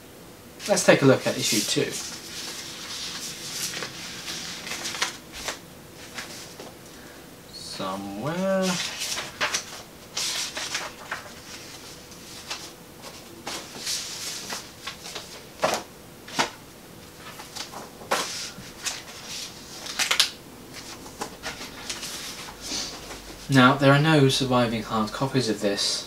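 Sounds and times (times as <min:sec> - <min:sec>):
sharp paper crackles: 0:00.6 - 0:06.7, 0:08.4 - 0:16.6, 0:17.2 - 0:22.6
paper rustling and page flips: 0:00.6 - 0:06.8, 0:08.3 - 0:16.6, 0:17.2 - 0:23.6.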